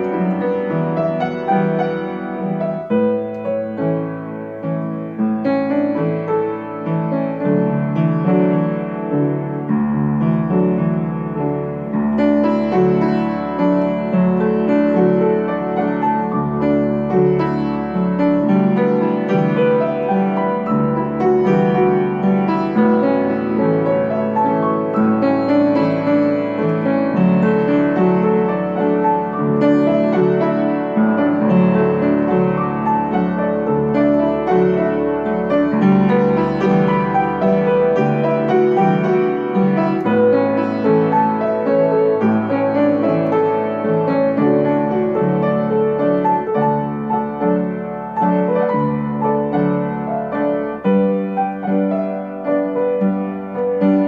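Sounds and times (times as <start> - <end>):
piano ballad: 0.0 - 54.0.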